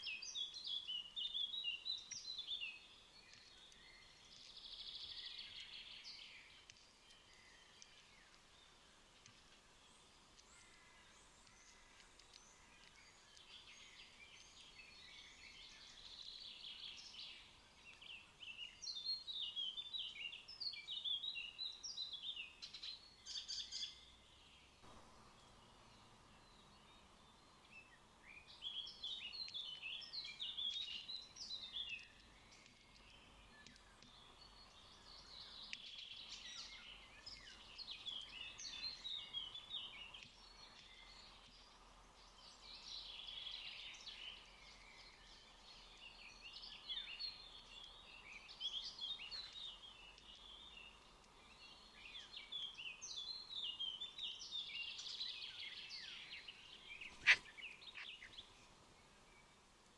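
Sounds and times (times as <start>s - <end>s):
magpies calling: 56.9s - 58.4s.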